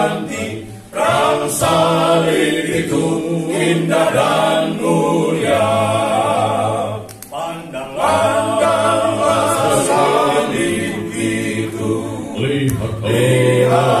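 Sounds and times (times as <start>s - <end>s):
male choir singing a hymn: 0.0s - 14.0s.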